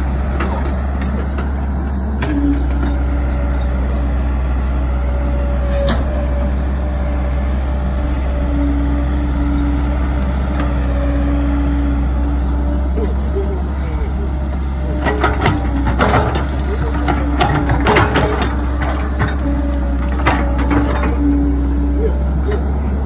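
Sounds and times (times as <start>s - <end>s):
excavator diesel engine: 0.0s - 23.0s.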